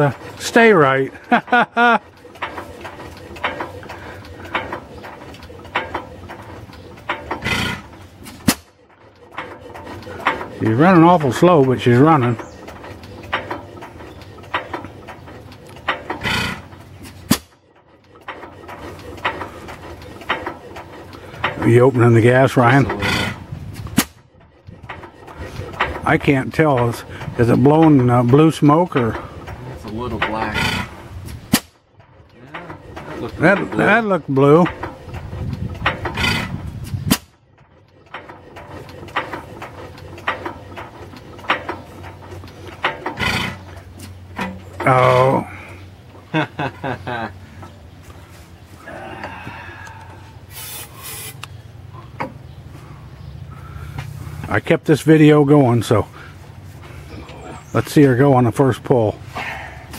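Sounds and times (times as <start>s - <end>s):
stationary engine popping slowly: 0.0s - 59.9s
sharp crack: 31.5s - 31.8s.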